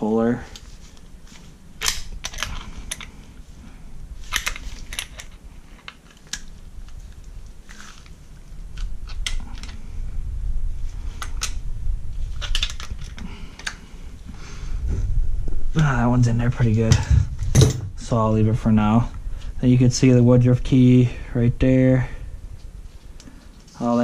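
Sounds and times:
low rumble of parts handled: 0:00.3 - 0:24.0
metallic clicks and clinks: 0:04.3 - 0:06.4.

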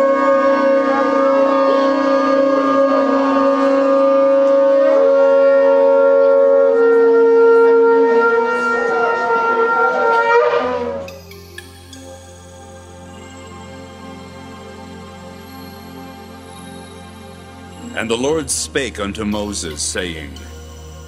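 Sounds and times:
shofar blasts: 0:00.0 - 0:11.2
soft music: 0:00.0 - 0:21.0.

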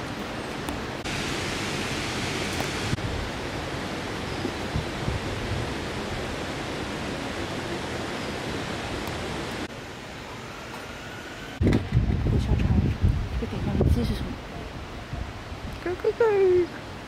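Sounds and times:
river water rushing: 0:00.0 - 0:10.4.

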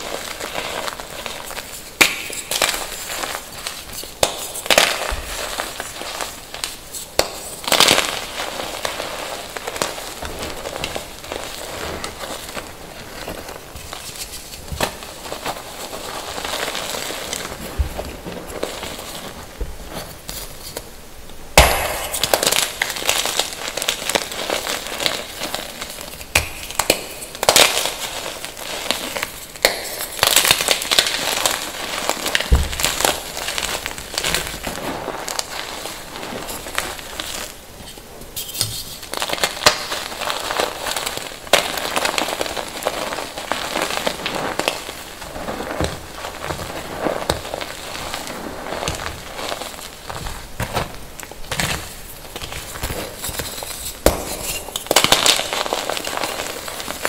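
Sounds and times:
chalk crunching by hand: 0:38.4 - 0:57.0.

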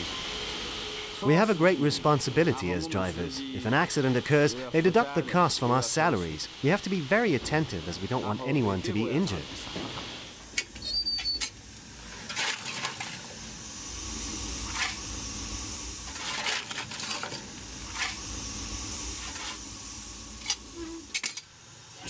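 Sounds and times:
steam hissing: 0:00.0 - 0:22.0
brief squeak: 0:10.8 - 0:11.5.

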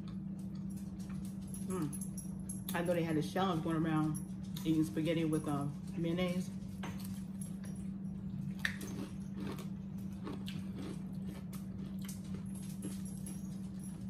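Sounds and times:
steady low hum: 0:00.0 - 0:14.0
wet chewing: 0:08.3 - 0:13.0.

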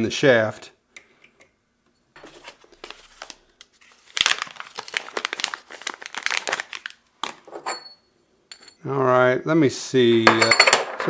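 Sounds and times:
paper bag crinkling: 0:02.2 - 0:07.5.

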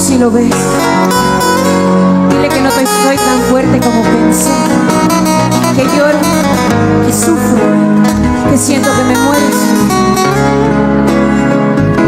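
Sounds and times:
bass notes: 0:00.0 - 0:12.0
bright accent: 0:00.0 - 0:12.0
strummed acoustic guitars: 0:00.1 - 0:12.0.

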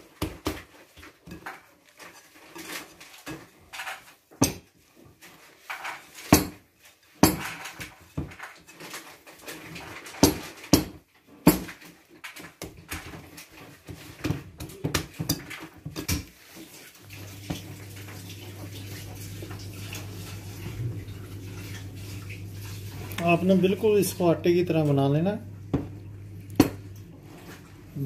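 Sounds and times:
steady low hum: 0:18.7 - 0:28.0.

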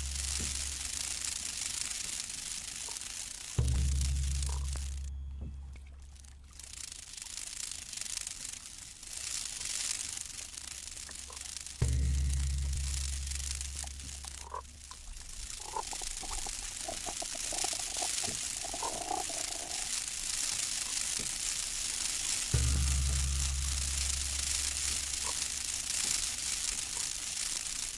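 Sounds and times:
low synthesised drone: 0:00.0 - 0:01.0, 0:03.6 - 0:06.0, 0:11.8 - 0:14.9, 0:22.6 - 0:26.1
short pitched sound grains: 0:00.0 - 0:02.7, 0:03.6 - 0:27.9
water and wind hiss: 0:00.0 - 0:27.9.

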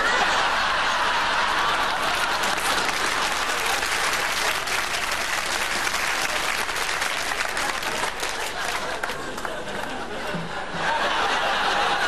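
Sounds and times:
audience applauding: 0:00.7 - 0:10.2.

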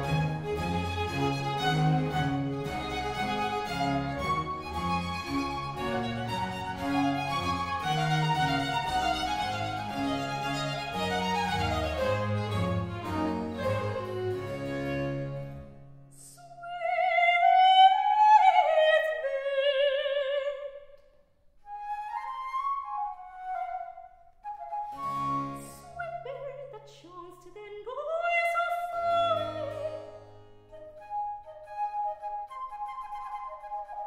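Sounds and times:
flute phrases: 0:00.0 - 0:15.6, 0:21.6 - 0:26.6, 0:30.6 - 0:34.0
string band and harpsichord chords: 0:00.0 - 0:16.1
soprano singing: 0:16.1 - 0:20.9, 0:25.5 - 0:30.2.

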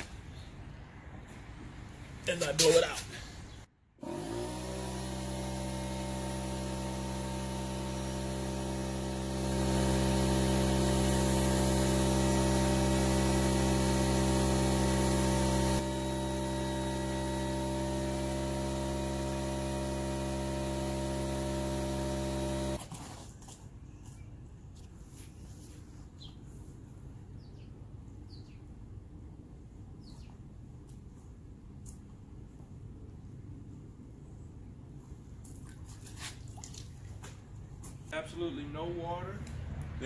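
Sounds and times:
electric blower motor running: 0:04.0 - 0:22.9.

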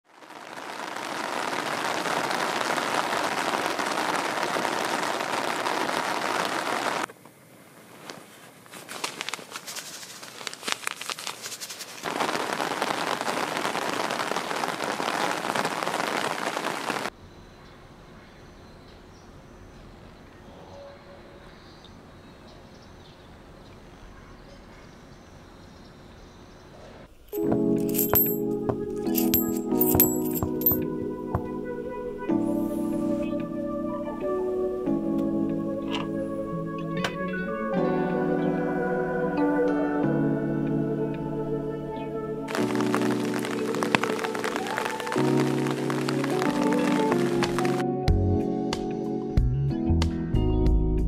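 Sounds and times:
rain falling: 0:00.0 - 0:07.1, 0:12.0 - 0:17.1, 0:27.7 - 0:28.4, 0:29.0 - 0:30.8, 0:42.5 - 0:47.8.

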